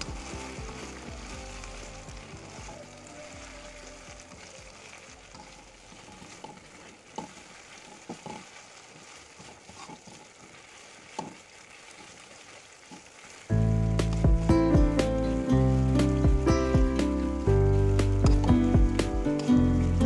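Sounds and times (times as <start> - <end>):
paste sizzling in hot oil: 5.3 - 20.0
loud music: 13.8 - 19.5.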